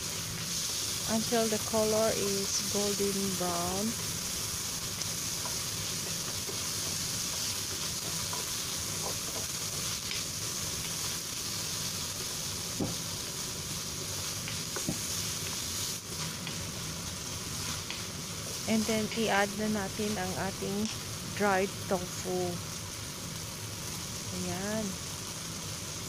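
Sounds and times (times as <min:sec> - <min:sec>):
meat sizzling in a wok: 0:00.0 - 0:26.0.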